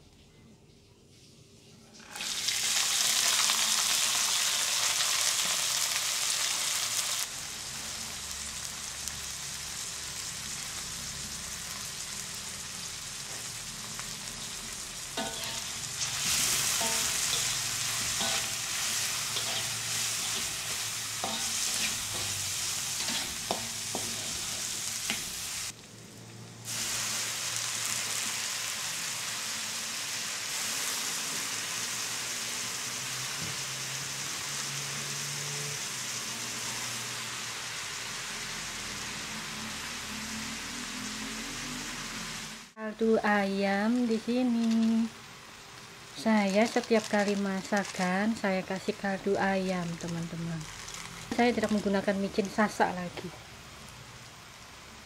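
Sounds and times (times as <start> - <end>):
food sizzling in hot oil: 2.0 - 26.0, 26.6 - 55.0
metal spatula scraping wok: 14.3 - 25.7.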